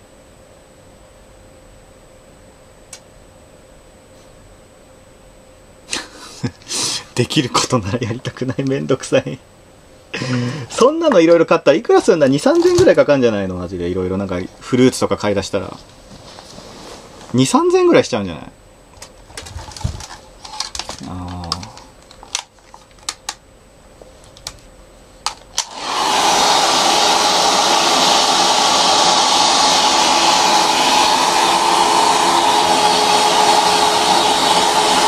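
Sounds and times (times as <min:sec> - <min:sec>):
hair dryer running: 0:25.5 - 0:35.0.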